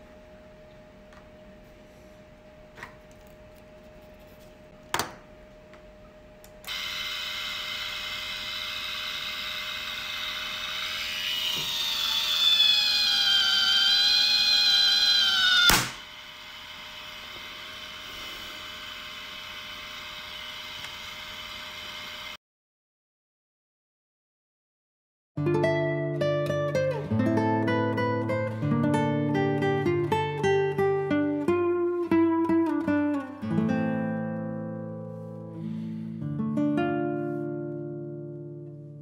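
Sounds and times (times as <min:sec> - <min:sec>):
gear motor whining: 0:06.7 - 0:22.4.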